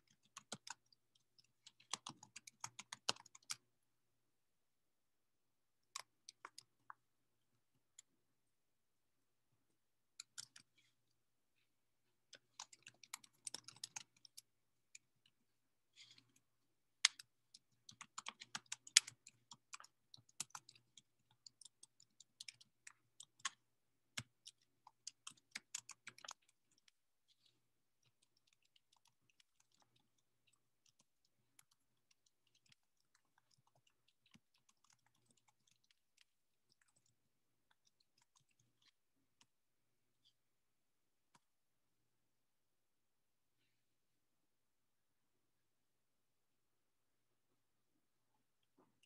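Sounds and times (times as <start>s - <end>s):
typing on computer keyboard: 0.0s - 3.7s, 12.3s - 15.1s, 17.0s - 39.0s.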